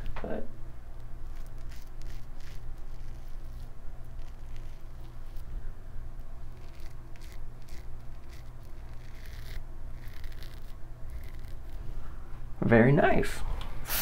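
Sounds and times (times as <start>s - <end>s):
steady low hum: 0.0s - 14.0s
razor scraping stubble: 0.9s - 5.6s, 6.2s - 12.0s.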